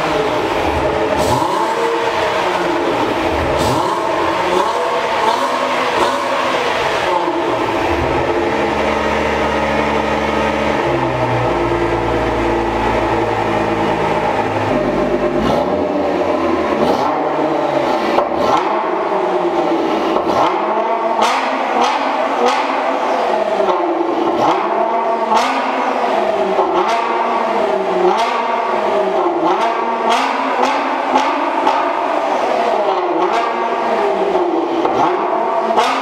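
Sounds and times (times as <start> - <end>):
exhaust cracks: 0.0 - 19.2
car engine revving: 0.0 - 36.0.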